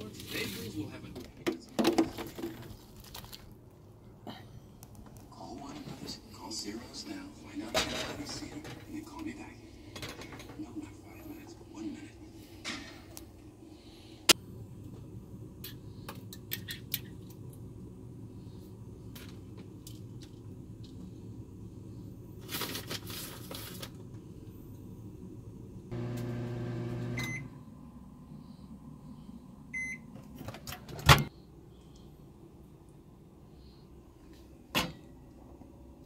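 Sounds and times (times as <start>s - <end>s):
microwave oven humming: 24.3s - 28.1s
microwave beeps: 26.0s - 27.6s, 29.7s - 30.1s.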